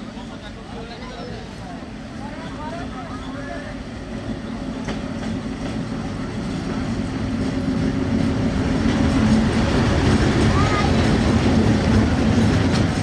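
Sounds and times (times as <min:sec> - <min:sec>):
diesel locomotive engine drone: 0:00.0 - 0:13.0.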